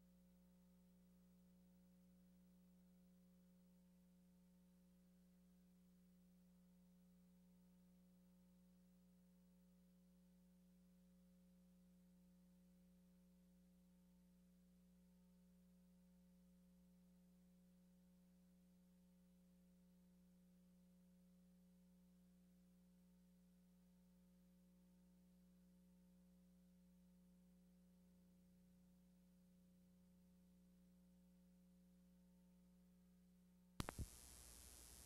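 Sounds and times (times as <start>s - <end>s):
faint low electrical hum: 33.8s - 35.0s.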